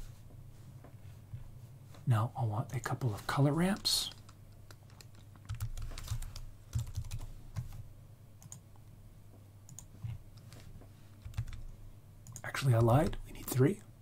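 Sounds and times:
keyboard keys tapping: 3.8s - 7.8s, 11.2s - 11.7s.

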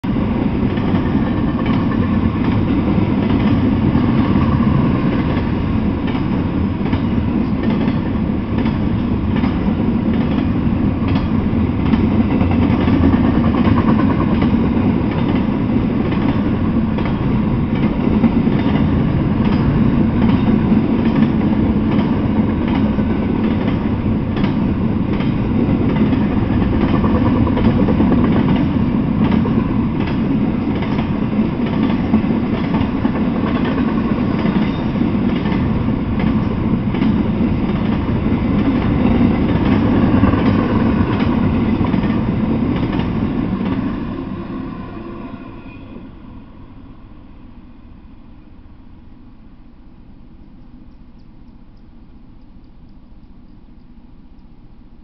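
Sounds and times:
freight train rumble: 0.0s - 55.0s
wheels clicking over rail joints: 0.7s - 43.8s.

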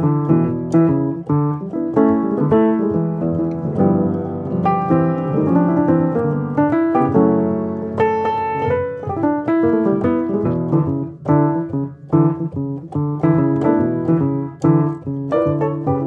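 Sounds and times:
piano music: 0.0s - 16.0s.

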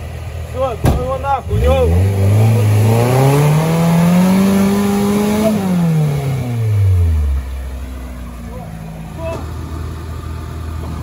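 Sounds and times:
vehicle engine revving: 1.4s - 9.9s.

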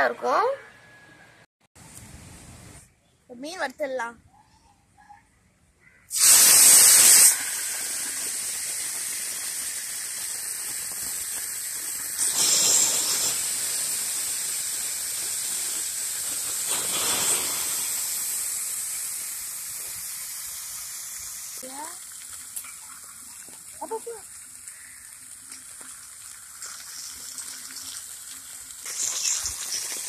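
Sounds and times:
fish sizzling in hot oil: 6.1s - 30.0s.

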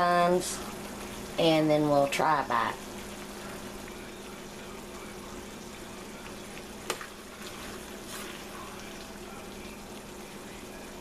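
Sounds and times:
sauce bubbling in a pot: 0.0s - 11.0s.

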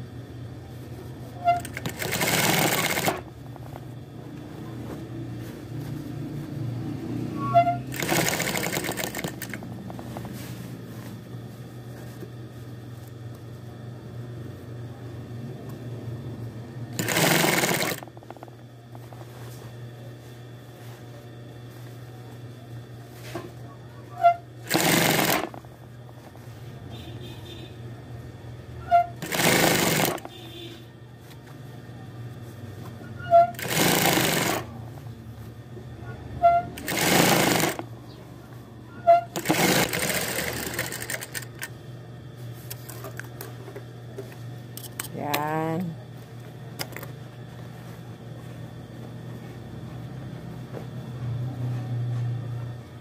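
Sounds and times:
low motor hum: 0.0s - 17.3s, 18.0s - 24.7s, 41.4s - 53.0s
sewing machine chirp: 1.4s - 3.2s, 7.4s - 9.6s, 17.0s - 18.0s, 24.2s - 25.6s, 28.8s - 30.3s, 33.1s - 34.7s, 36.5s - 37.8s, 39.0s - 41.7s
sewing machine stitching: 1.4s - 3.3s, 7.4s - 9.7s, 17.0s - 18.2s, 24.6s - 25.6s, 28.9s - 30.3s, 33.3s - 34.7s, 36.7s - 37.9s, 39.1s - 41.7s.

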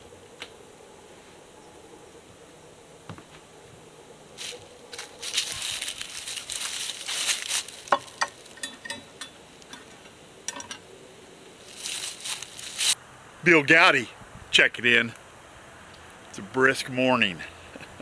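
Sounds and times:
dry leaves crunching and rustling: 4.4s - 8.7s, 11.6s - 13.0s.

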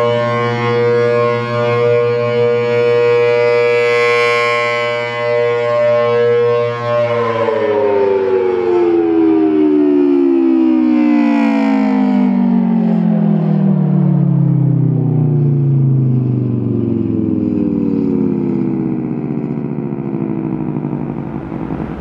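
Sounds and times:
rotating siren alert chord: 13.7s - 22.0s.

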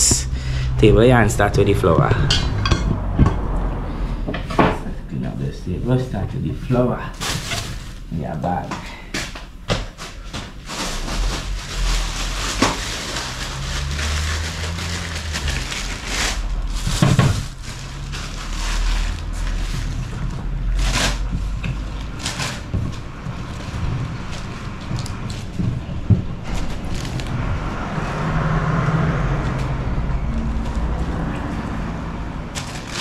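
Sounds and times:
low rumble: 0.0s - 6.4s, 11.1s - 33.0s
plastic bag crinkling: 7.0s - 8.4s, 10.0s - 25.6s, 26.4s - 27.5s, 32.5s - 33.0s.

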